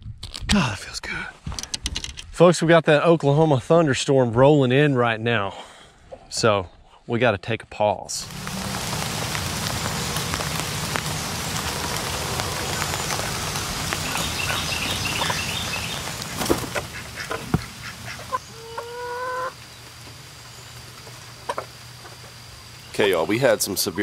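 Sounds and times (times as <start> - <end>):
rain falling on a tarp: 8.2 - 24.0
chicken calling: 10.8 - 20.0.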